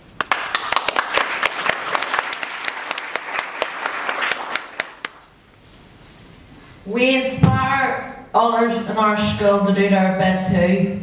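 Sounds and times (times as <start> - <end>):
audience applauding: 0.0 - 5.3.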